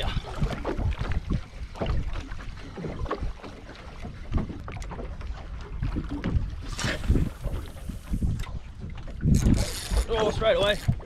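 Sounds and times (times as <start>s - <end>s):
water lapping against hull: 0.0s - 11.0s
wind buffeting microphone: 0.0s - 11.0s.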